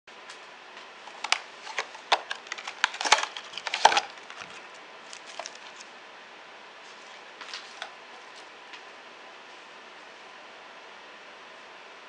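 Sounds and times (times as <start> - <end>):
plastic packaging crackling: 1.0 - 5.9.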